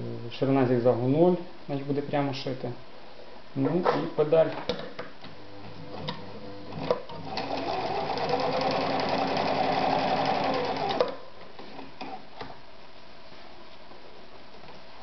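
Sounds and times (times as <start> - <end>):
sewing machine stitching: 6.7 - 12.2.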